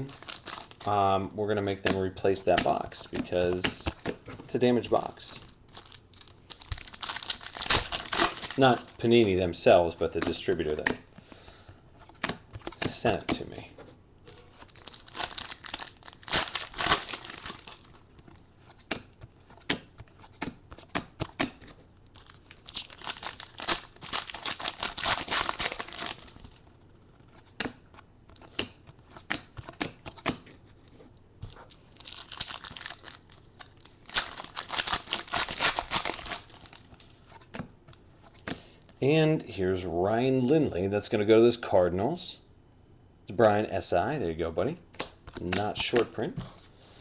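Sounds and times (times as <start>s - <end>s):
foil wrappers tearing and crinkling: 0.0s - 0.8s, 5.7s - 8.9s, 14.5s - 18.0s, 22.2s - 26.6s, 31.7s - 36.8s
cards clicking and tapping: 10.0s - 11.5s.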